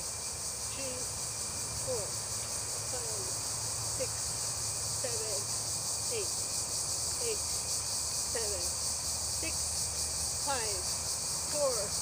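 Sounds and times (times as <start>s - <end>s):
insects buzzing: 0.0s - 12.0s.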